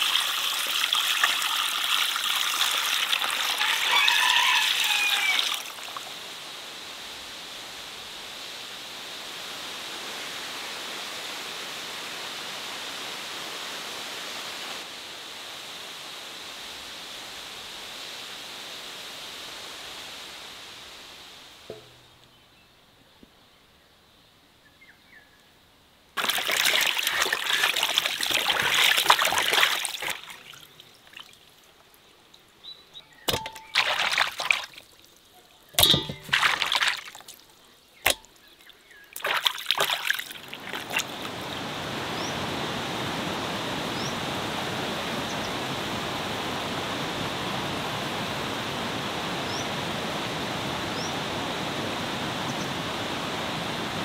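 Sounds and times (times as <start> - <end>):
water splashing in a basin: 0.0 - 6.2, 26.2 - 31.7, 33.3 - 41.4.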